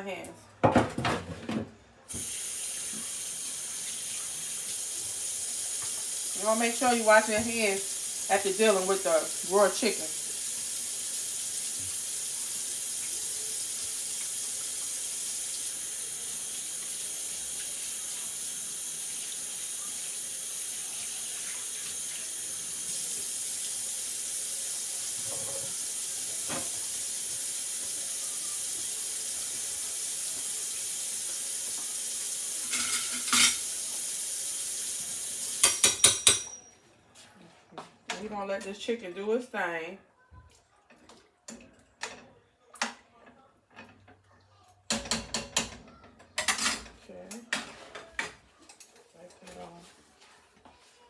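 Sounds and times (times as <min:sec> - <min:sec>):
faucet water running: 0:02.1 - 0:36.7.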